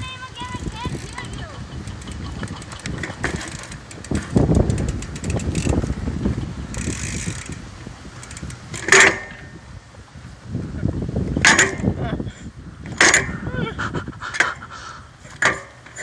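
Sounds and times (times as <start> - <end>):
bike hub ratcheting clicks: 0.6 - 6.1, 6.7 - 9.4.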